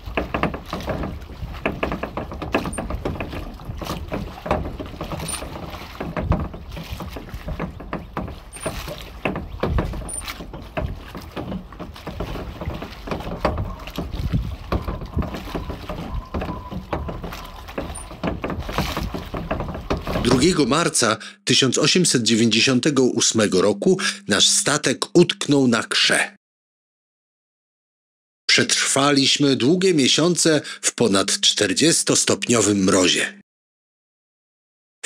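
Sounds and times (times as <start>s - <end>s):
water splashing and sloshing: 0.0s - 21.1s.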